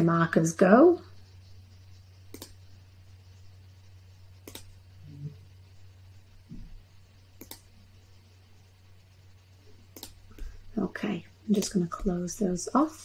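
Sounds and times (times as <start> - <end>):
low steady hum: 0.0 - 13.0
computer mouse clicks: 2.3 - 2.6, 4.4 - 4.8, 7.4 - 7.7, 9.9 - 10.5.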